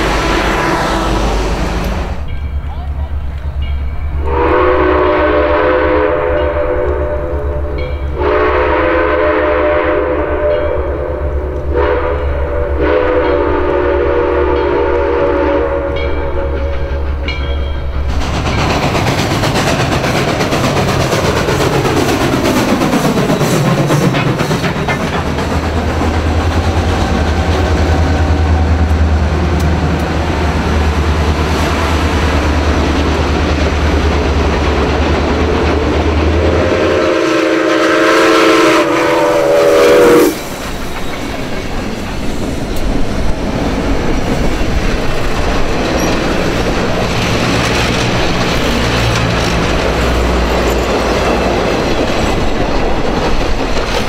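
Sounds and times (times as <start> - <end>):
steam locomotive whistle: 0.0 - 2.1, 4.2 - 16.9, 36.2 - 40.6
train passing: 0.0 - 54.0
train wheels clicking over rail joints: 16.2 - 37.9, 38.8 - 54.0.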